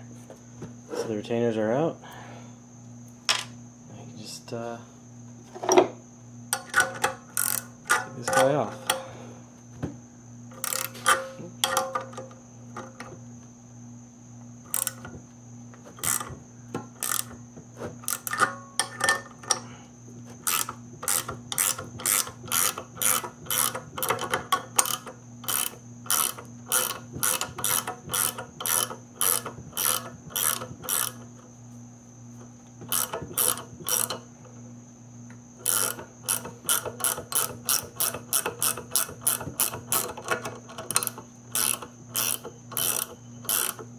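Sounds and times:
electrical hum: 0:00.0 - 0:43.9
ratchet wrench clicking: 0:06.6 - 0:09.0, 0:10.6 - 0:11.8, 0:14.7 - 0:15.0, 0:16.0 - 0:16.3, 0:17.0 - 0:17.4, 0:18.0 - 0:19.6, 0:20.4 - 0:31.3, 0:32.9 - 0:34.2, 0:35.6 - 0:43.9.

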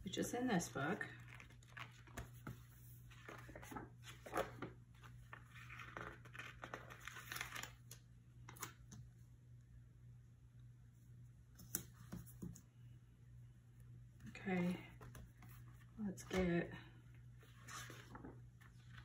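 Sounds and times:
paper pages rustling: 0:01.2 - 0:08.8, 0:17.4 - 0:19.0.

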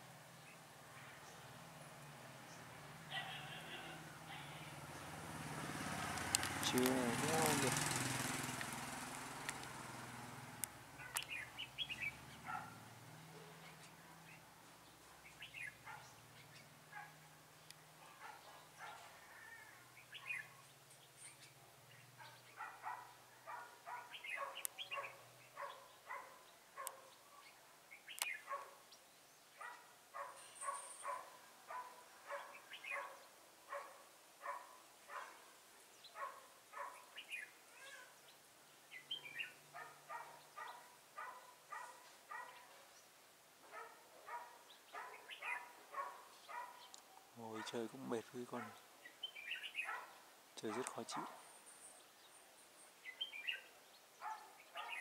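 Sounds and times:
animal calling: 0:03.1 - 0:04.7.

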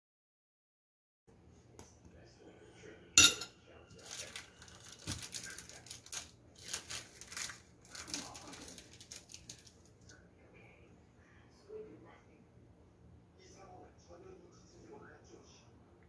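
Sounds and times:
knife clinking against glass: 0:03.2 - 0:03.5.

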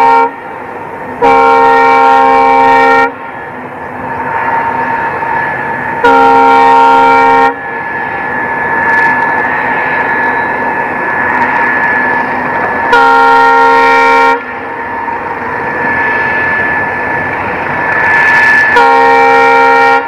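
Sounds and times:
train horn blasts: 0:00.0 - 0:00.5, 0:01.2 - 0:03.3, 0:06.0 - 0:07.7, 0:12.8 - 0:14.6, 0:18.6 - 0:20.0
train rumble and whine: 0:00.0 - 0:20.0.

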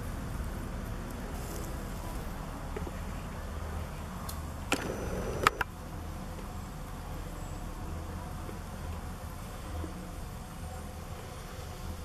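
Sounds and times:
low outdoor rumble: 0:00.0 - 0:12.0
sharp clicks: 0:04.3 - 0:05.7.

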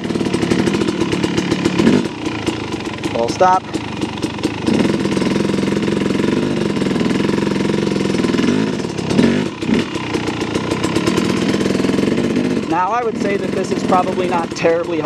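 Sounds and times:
dirt bike engine at low revs: 0:00.0 - 0:15.0.

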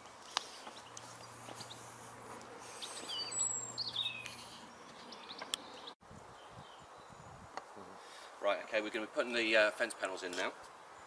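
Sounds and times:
songbirds chirping: 0:00.1 - 0:11.0
steady background hiss: 0:04.6 - 0:11.0.

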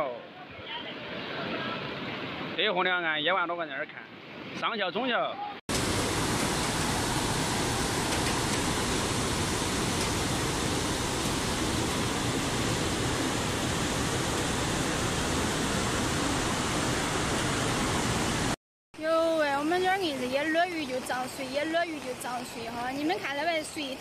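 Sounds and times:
river rushing in flood: 0:05.7 - 0:24.0.

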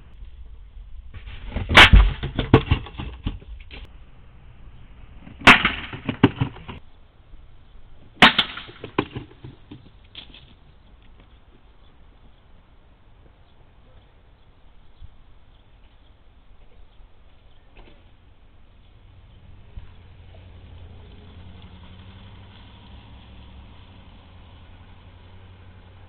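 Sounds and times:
loud bangs: 0:01.1 - 0:06.8
sharp cracks: 0:01.1 - 0:06.8, 0:08.1 - 0:11.2.

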